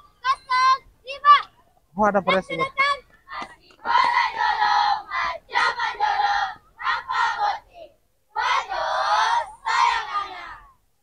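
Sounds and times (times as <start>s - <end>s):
girls chanting in unison: 2.6s - 10.8s.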